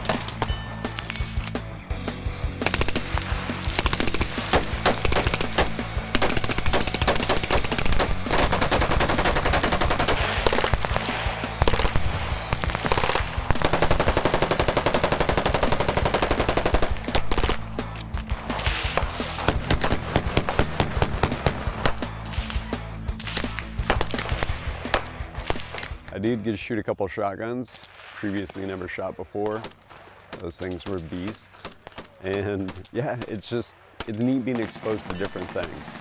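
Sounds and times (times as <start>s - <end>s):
automatic gunfire bursts: 2.6s - 17.7s, 18.5s - 22.6s, 23.2s - 25.9s.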